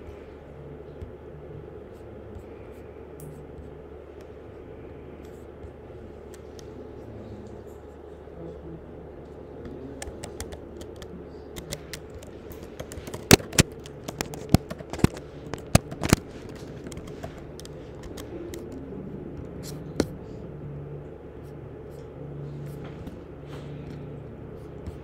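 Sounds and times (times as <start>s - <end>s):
computer keyboard key clicks: 10.0s - 18.8s.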